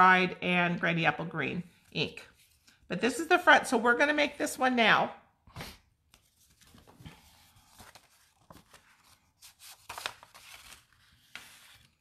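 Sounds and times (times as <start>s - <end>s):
paper rustling: 6.1s - 12.0s.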